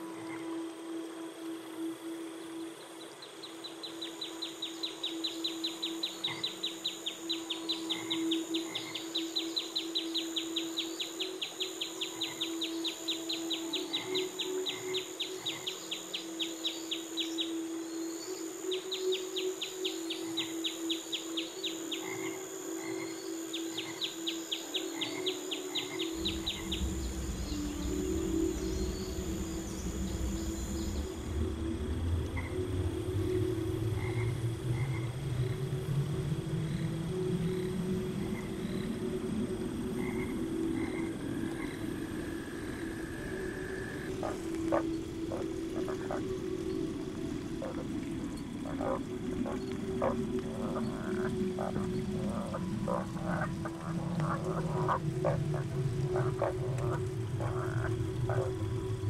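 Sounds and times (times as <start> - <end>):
high insect drone: 0.0 - 59.0
frog pulsed trill: 42.4 - 59.0.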